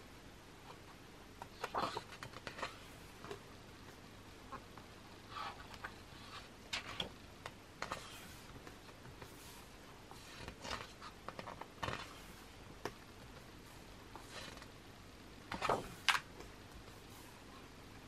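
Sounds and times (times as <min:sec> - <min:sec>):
pages turning: 0:01.5 - 0:02.9, 0:10.2 - 0:12.4, 0:14.2 - 0:14.7, 0:15.5 - 0:16.2.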